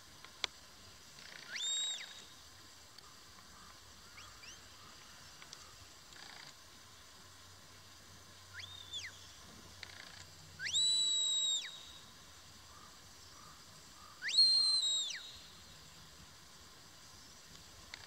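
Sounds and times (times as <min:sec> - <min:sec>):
long high whistles: 0:01.3 - 0:02.5, 0:08.4 - 0:09.4, 0:10.6 - 0:12.5, 0:14.0 - 0:16.1.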